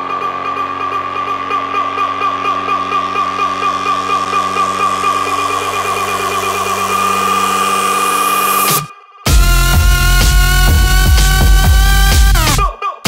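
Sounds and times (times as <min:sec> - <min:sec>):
warbling synth chord: 0:00.0 - 0:12.4.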